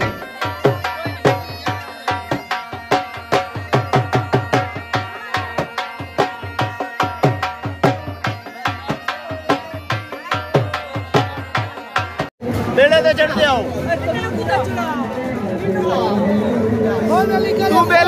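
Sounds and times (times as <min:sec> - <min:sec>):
fast hand drumming: 0:00.0 - 0:12.3.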